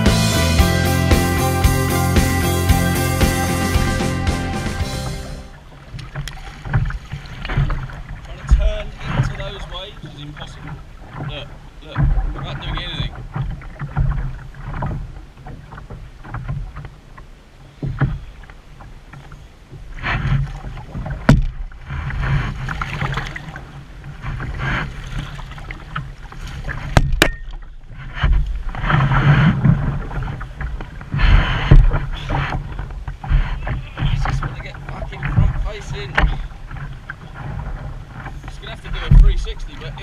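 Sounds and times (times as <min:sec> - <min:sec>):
water slapping canoe hull: 0:00.0 - 0:40.0
knocks on canoe hull: 0:20.5 - 0:21.8, 0:26.8 - 0:28.6, 0:30.6 - 0:34.6, 0:39.0 - 0:39.5.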